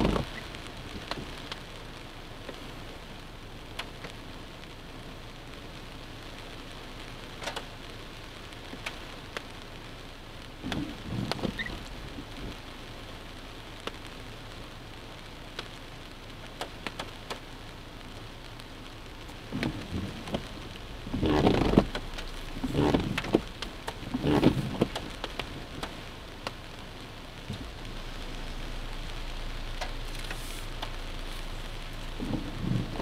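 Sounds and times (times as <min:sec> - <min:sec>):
heavy rain on car roof: 0:00.0 - 0:33.0.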